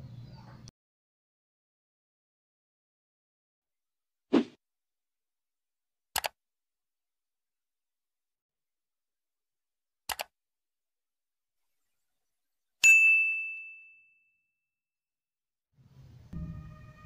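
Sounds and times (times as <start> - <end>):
double mouse click: 6.2 - 6.4, 10.1 - 10.3
high bell ding: 12.8 - 14.5.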